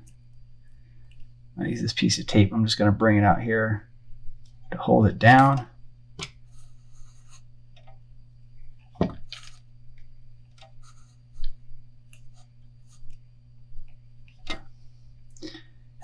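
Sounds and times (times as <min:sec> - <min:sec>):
steady low hum: 0:00.0 - 0:16.0
hands handling thread and tape: 0:09.1 - 0:12.4.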